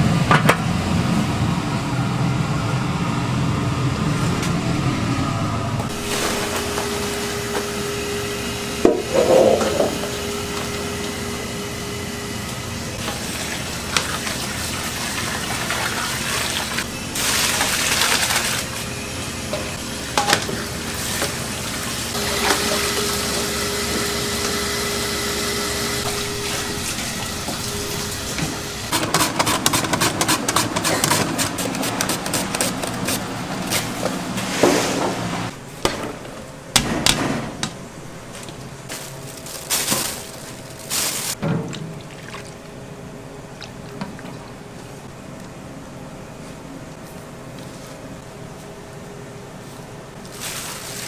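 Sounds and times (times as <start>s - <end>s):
kitchen hum: 3.5s - 51.0s
water splashing and draining: 13.0s - 18.7s, 41.6s - 42.8s.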